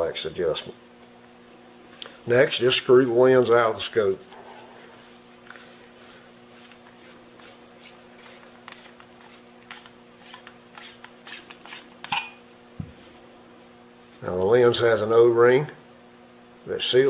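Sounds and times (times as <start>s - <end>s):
scratchy rubbing of threads: 3.9s - 11.9s.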